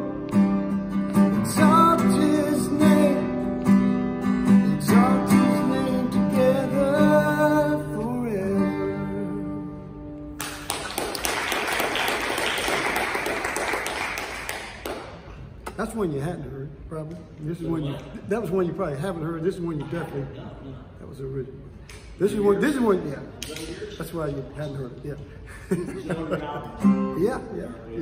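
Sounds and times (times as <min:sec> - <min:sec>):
acoustic guitar strumming: 0:00.0 - 0:10.4, 0:26.7 - 0:27.5
person singing: 0:01.4 - 0:03.5, 0:04.6 - 0:09.7
applause: 0:10.4 - 0:15.3.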